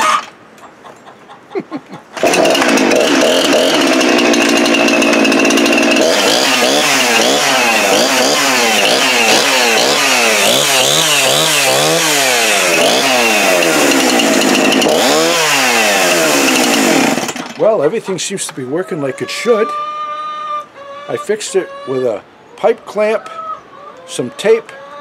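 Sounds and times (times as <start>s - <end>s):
chainsaw revving: 2.2s - 17.8s.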